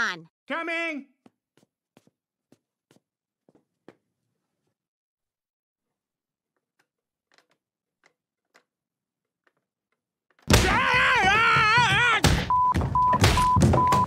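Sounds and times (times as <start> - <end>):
wobbling yell: 10.6 - 12.2
short beeps: 12.5 - 14.0.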